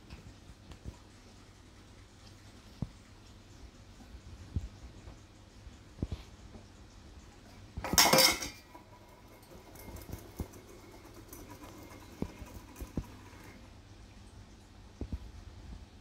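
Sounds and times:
metal bowl clattering on tile floor: 7.8s - 13.2s.

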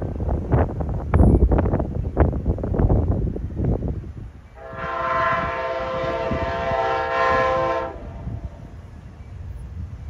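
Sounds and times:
wind gusts on microphone: 0.0s - 10.0s
locomotive horn chord: 4.6s - 8.4s.

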